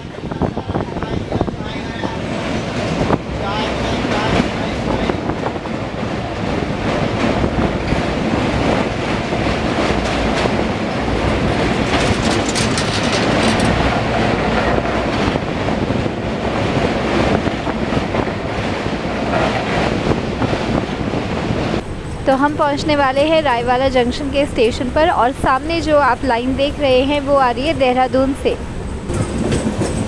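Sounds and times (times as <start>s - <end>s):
train wheels rattling on rails: 0.0s - 30.0s
sharp train clatter: 0.5s - 22.7s, 28.7s - 30.0s.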